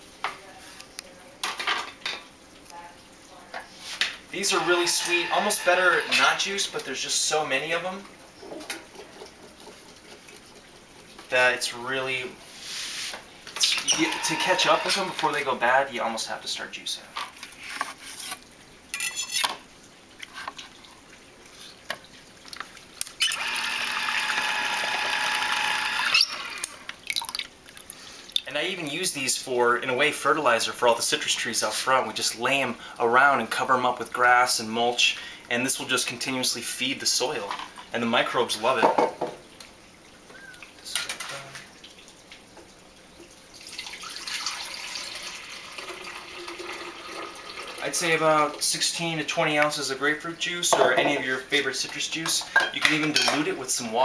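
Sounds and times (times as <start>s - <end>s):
kitchenware clatter: 1.4s - 2.3s, 18.9s - 19.6s, 38.8s - 39.4s, 40.9s - 41.5s, 50.7s - 53.7s
electric citrus juicer humming: 4.4s - 6.5s, 13.9s - 15.2s, 23.2s - 26.9s
juicer grinding pulp: 4.4s - 6.8s, 13.7s - 15.6s, 23.1s - 26.9s, 43.6s - 48.6s
juice splashing: 26.2s - 28.7s, 39.5s - 48.7s.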